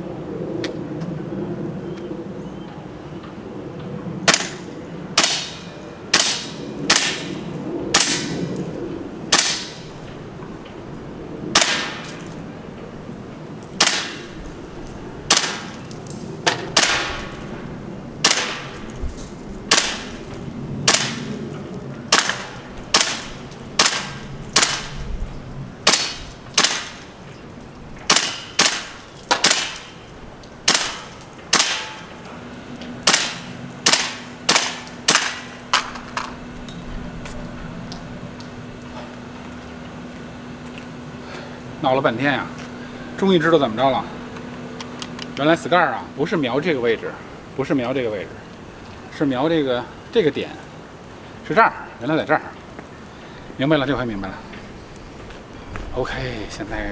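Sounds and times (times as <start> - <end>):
airsoft rifle shots: 4.2 - 4.6, 5.2 - 7.3, 7.9 - 8.4, 9.3 - 9.8, 11.5 - 12.1, 13.8 - 14.3, 15.3 - 15.8, 16.4 - 17.4, 18.2 - 18.8, 19.7 - 20.2, 20.8 - 21.3, 22.1 - 25.0, 25.8 - 27.1, 28.0 - 30.0, 30.6 - 32.1, 33.0 - 36.0.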